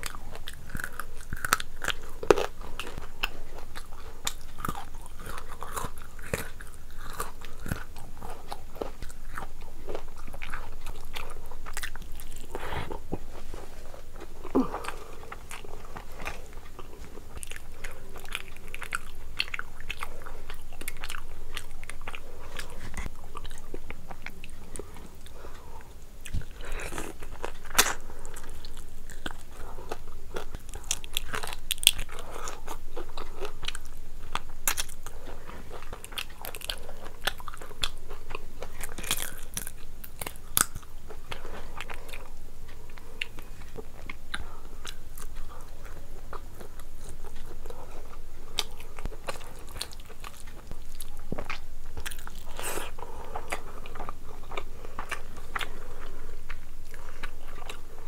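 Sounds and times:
person chewing crunchy food: 0.0s - 58.0s.

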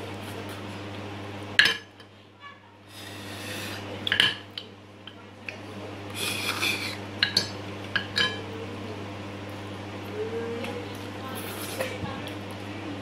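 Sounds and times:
clinks and taps on a plate: 7.2s - 8.4s.

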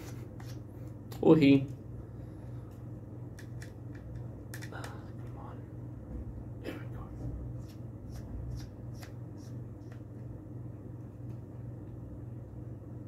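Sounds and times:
steady low hum: 0.0s - 13.0s
screwdriver light clicks: 3.3s - 4.7s.

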